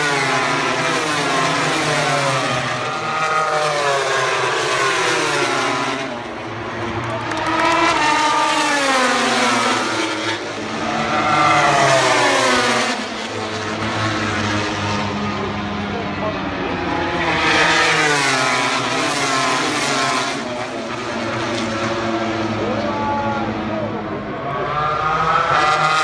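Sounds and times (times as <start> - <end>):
racing motorcycle engines revving: 0.0 - 26.0.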